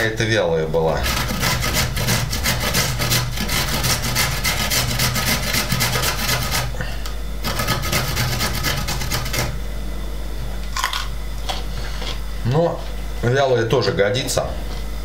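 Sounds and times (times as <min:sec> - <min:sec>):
carrot rasping on a grater: 0:01.0 - 0:06.8, 0:07.4 - 0:09.6.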